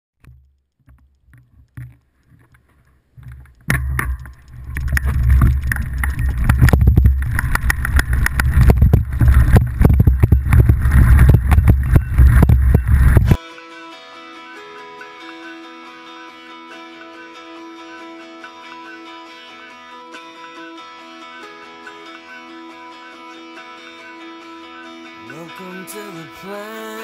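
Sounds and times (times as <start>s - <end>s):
faint clicks: 0.2s - 13.4s
wind buffeting microphone: 4.4s - 13.4s.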